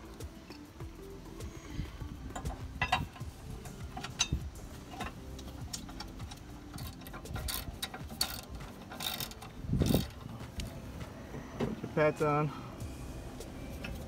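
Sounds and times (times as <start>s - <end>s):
ratchet wrench clicking: 2.3s - 10.3s.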